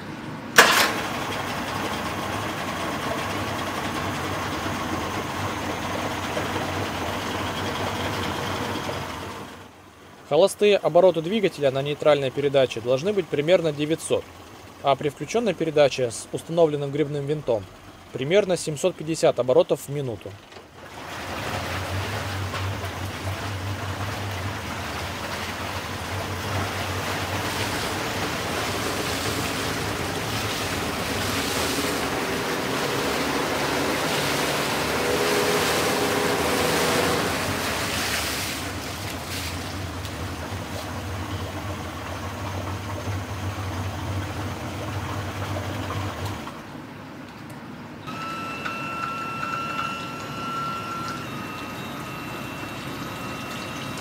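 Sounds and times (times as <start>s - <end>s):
propeller churning water: 0.0s - 54.0s
outboard motor running: 0.6s - 10.3s, 11.1s - 18.5s, 20.4s - 46.7s, 48.1s - 54.0s
water dripping: 21.6s - 46.4s
faint steady tones: 48.0s - 54.0s.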